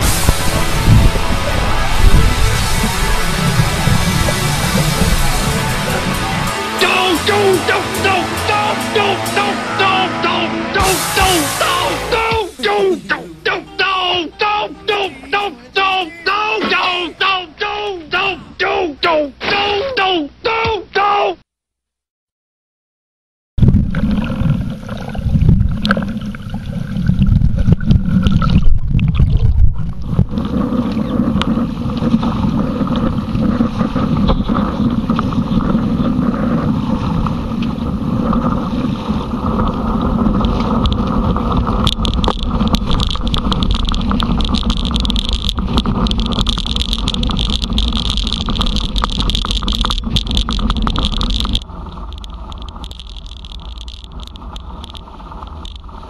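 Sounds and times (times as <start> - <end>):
wind buffeting microphone: 0.0 - 6.5, 23.6 - 53.0
water rushing along hulls: 0.0 - 17.3, 23.8 - 56.0.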